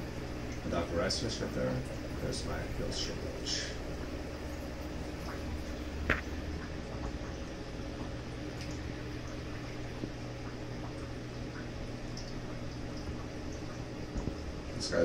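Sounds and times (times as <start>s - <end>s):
aquarium water bubbling: 0.0s - 15.0s
tank equipment hum: 0.0s - 15.0s.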